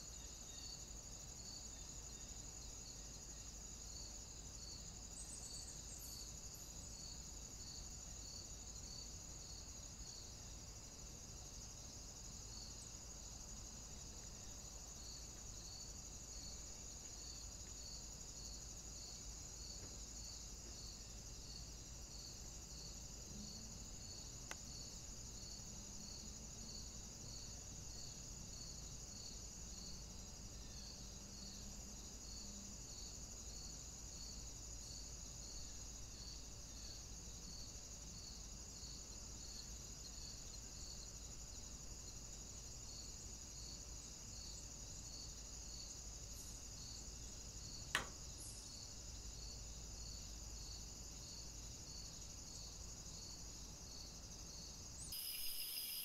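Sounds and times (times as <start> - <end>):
insects chirring: 0.0 - 56.0
sharp click: 47.9 - 48.2.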